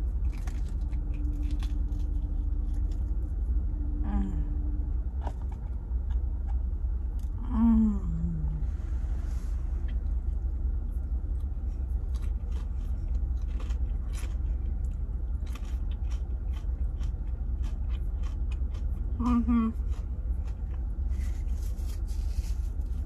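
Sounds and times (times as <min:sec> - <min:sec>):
chewing and mouth clicks: 0:00.0 - 0:03.4, 0:05.2 - 0:07.4, 0:09.8 - 0:21.8
car idling rumble: 0:00.0 - 0:23.0
person humming: 0:04.0 - 0:04.7, 0:07.4 - 0:08.7, 0:19.2 - 0:19.8.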